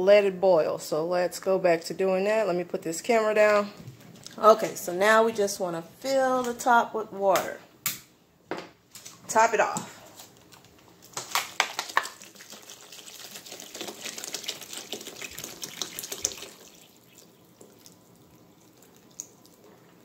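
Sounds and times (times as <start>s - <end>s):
water pouring onto vegetables: 11.6s - 19.8s.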